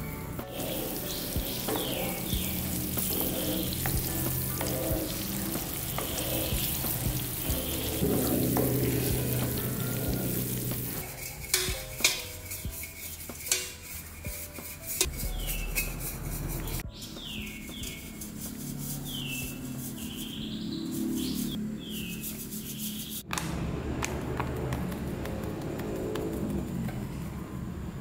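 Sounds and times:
margarine sizzling in a pan: 0:00.4 - 0:13.7.

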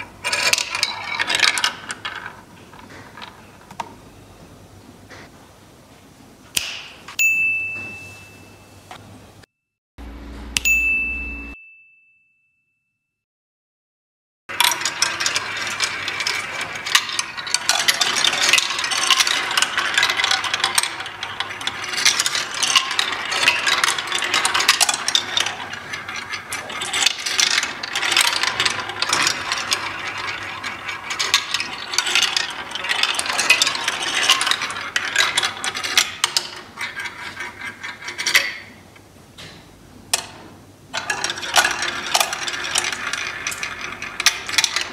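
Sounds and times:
small hard parts clicking and rattling: 0:00.0 - 0:03.9, 0:14.5 - 0:38.8, 0:40.1 - 0:44.9
short ding: 0:07.2 - 0:08.8, 0:10.6 - 0:13.0.

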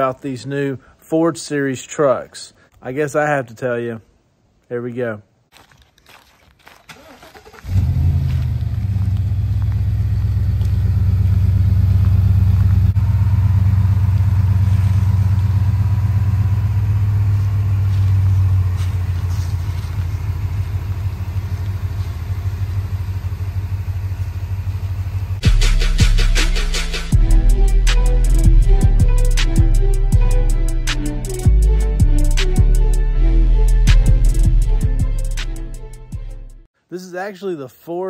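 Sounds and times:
pickup engine idling: 0:07.0 - 0:25.5.

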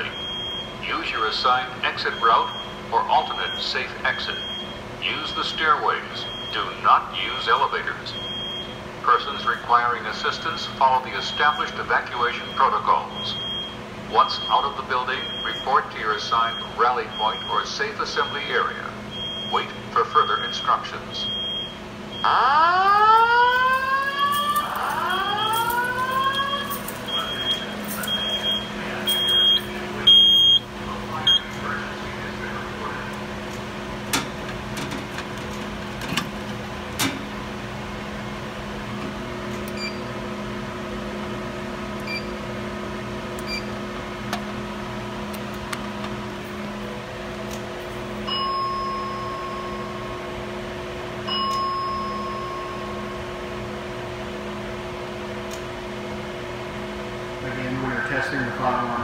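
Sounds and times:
fire alarm whoop tone: 0:00.0 - 0:00.8, 0:02.0 - 0:06.7, 0:08.1 - 0:08.8, 0:12.4 - 0:15.8, 0:16.4 - 0:31.5, 0:48.3 - 0:50.2, 0:51.3 - 0:53.3
ventilation hum: 0:00.0 - 0:59.0
high intermittent beep: 0:26.4 - 0:30.7, 0:39.8 - 0:40.1.

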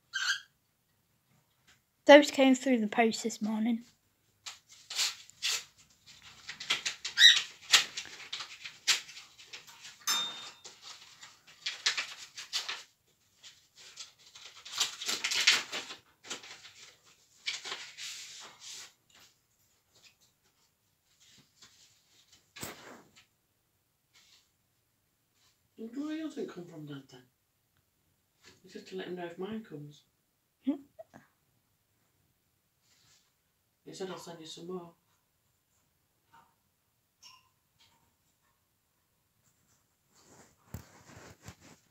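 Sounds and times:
paper rustling and tearing: 0:04.4 - 0:10.0, 0:10.6 - 0:19.4, 0:21.2 - 0:23.2, 0:40.2 - 0:41.9.

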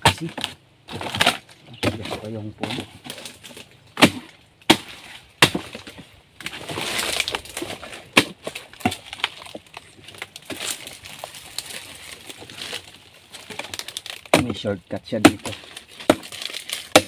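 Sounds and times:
machete chopping wood: 0:00.0 - 0:09.6, 0:13.5 - 0:17.0
wood and dry fronds crackling: 0:00.0 - 0:17.0.

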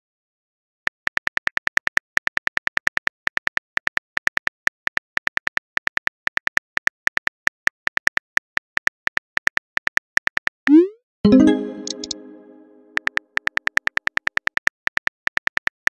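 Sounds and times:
phone keyboard typing ticks: 0:01.0 - 0:08.2, 0:11.7 - 0:12.2, 0:12.9 - 0:15.9.

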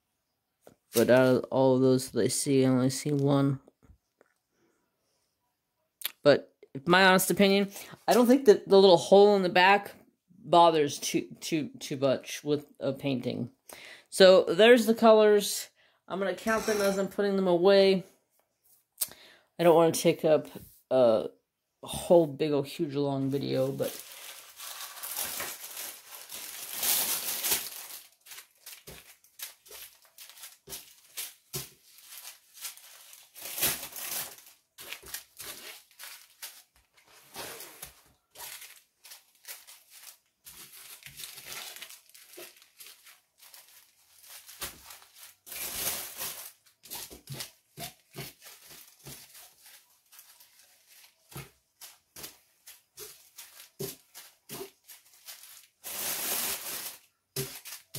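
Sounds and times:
plastic bags crinkling: 0:23.3 - 0:57.9.

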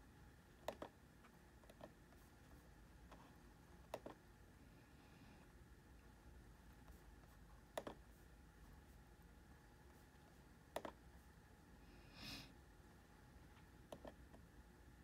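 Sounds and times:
laptop clicks: 0:00.6 - 0:01.0, 0:10.7 - 0:11.0.

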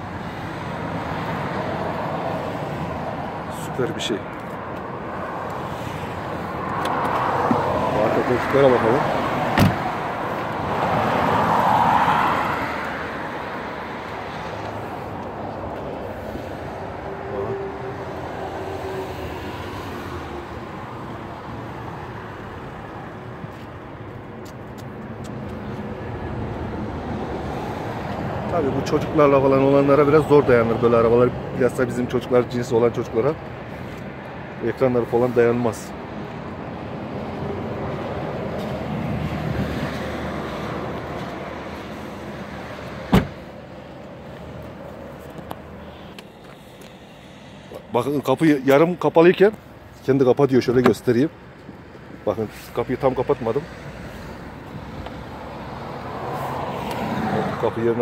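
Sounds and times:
motor vehicle rumble: 0:00.0 - 0:32.6
car door thump: 0:09.5 - 0:09.9, 0:43.1 - 0:43.4.

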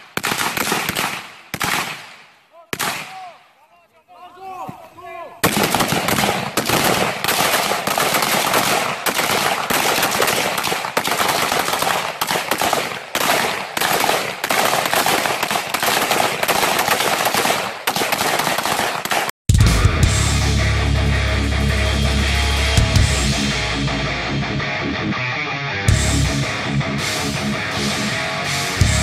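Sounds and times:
rifles firing volley: 0:00.0 - 0:03.6, 0:04.4 - 0:19.3.

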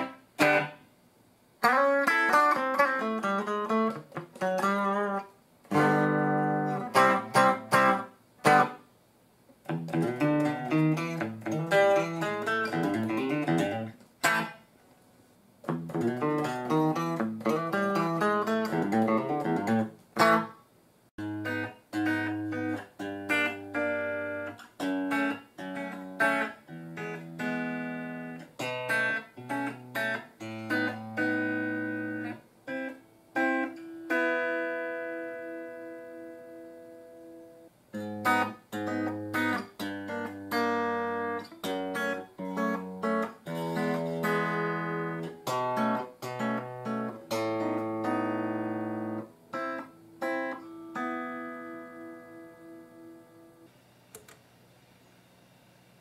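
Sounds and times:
clean electric guitar: 0:00.0 - 0:00.8, 0:01.6 - 0:08.8, 0:09.5 - 0:14.6, 0:15.6 - 0:20.6, 0:21.2 - 0:54.4.

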